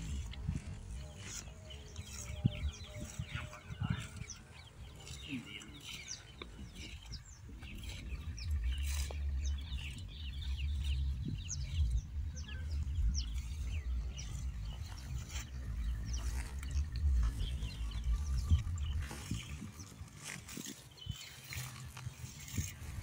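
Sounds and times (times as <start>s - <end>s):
birds chirping: 0.0s - 23.0s
low rumble: 5.8s - 20.5s.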